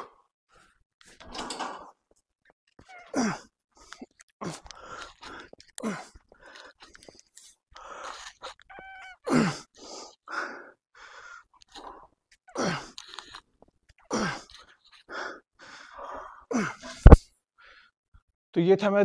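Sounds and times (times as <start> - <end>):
man gasping breaths: 9.3 - 13.4, 14.1 - 17.9.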